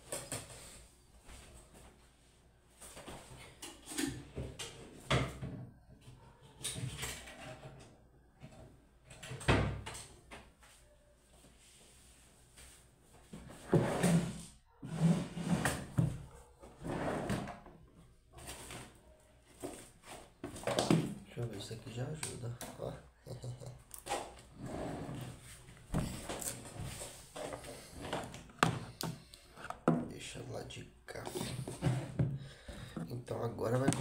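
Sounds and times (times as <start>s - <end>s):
drawers and cupboard doors opening: 3.2s - 5.8s, 6.6s - 10.3s, 13.4s - 17.8s, 24.0s - 30.1s, 31.2s - 33.0s.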